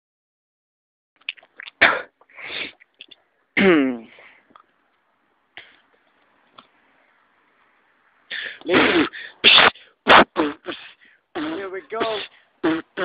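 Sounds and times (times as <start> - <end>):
breathy vocal bursts: 8.3 - 13.0.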